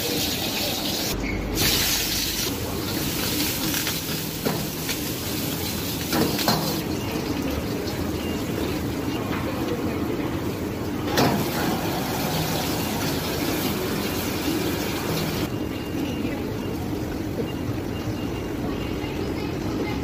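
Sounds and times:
food sizzling in a hot wok: 0.0s - 6.8s.

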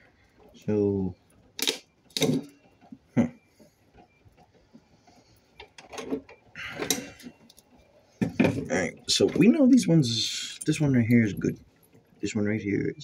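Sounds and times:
battery cells and wires knocking: 1.5s - 4.5s, 5.4s - 9.9s.

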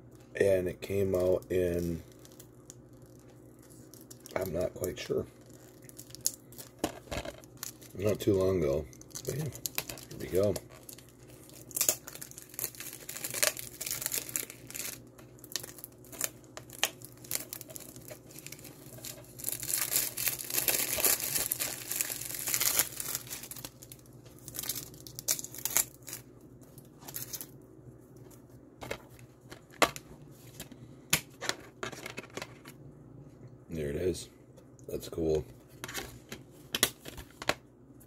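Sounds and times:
plastic wrap crinkling: 0.9s - 27.6s.

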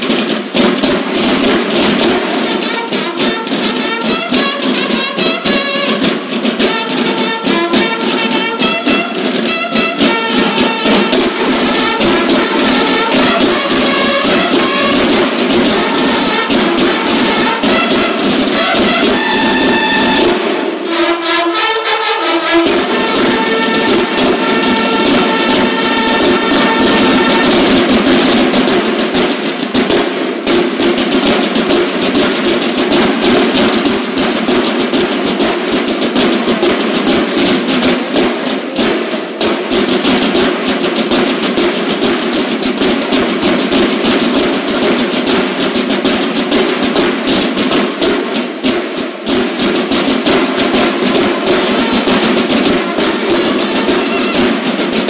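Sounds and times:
fast snare drumming: 0.0s - 55.0s
bugles holding a chord: 2.2s - 27.8s.

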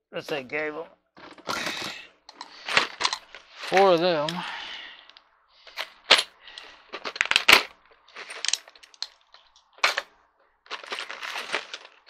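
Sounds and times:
plastic pack crinkling: 6.6s - 10.1s, 10.7s - 12.0s.

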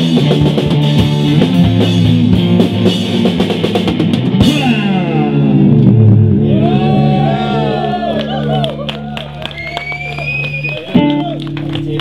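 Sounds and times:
drum hits and cymbal crash: 0.0s - 6.2s
rock band playing live: 0.0s - 12.0s.

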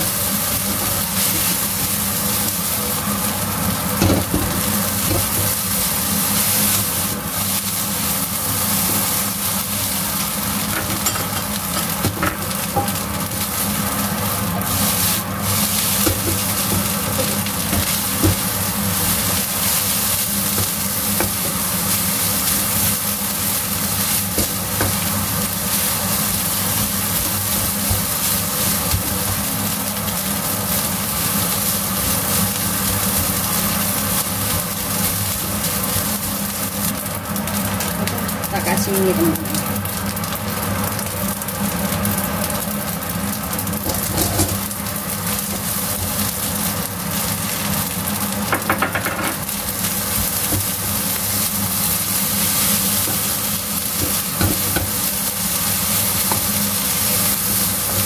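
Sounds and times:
rice sizzling in a wok: 0.0s - 58.0s.

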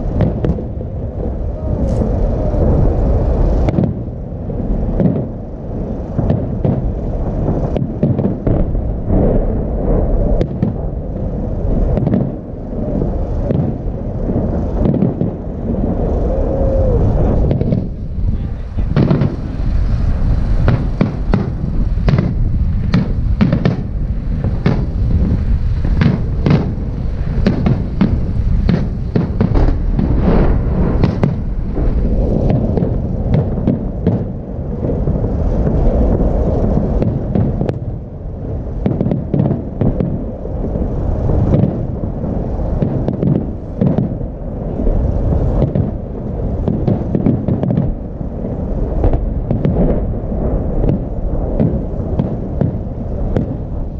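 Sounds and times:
low rumble: 0.0s - 53.9s
firework shells bursting: 10.1s - 16.7s, 17.3s - 38.1s, 41.3s - 44.2s.

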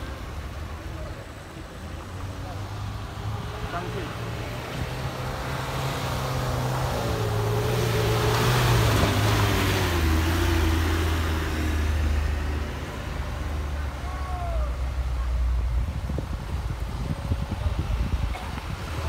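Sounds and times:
pickup truck driving past: 3.2s - 13.8s.

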